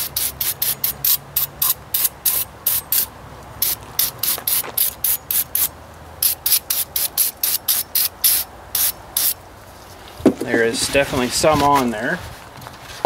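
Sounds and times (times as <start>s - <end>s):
rubbing strokes on metal surface: 0.0s - 9.9s.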